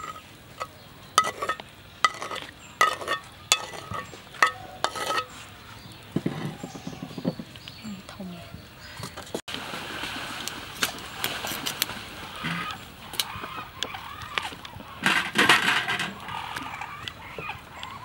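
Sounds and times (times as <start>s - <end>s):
metal utensil tapping steel bowl: 0.0s - 5.3s
birds calling: 0.0s - 9.4s, 10.8s - 18.0s.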